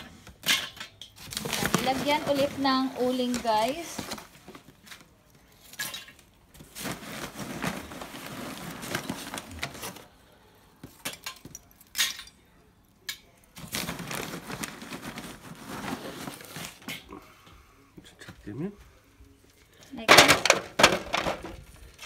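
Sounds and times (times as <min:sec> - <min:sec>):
charcoal clinking and knocking: 0:00.0 - 0:04.0, 0:20.0 - 0:21.6.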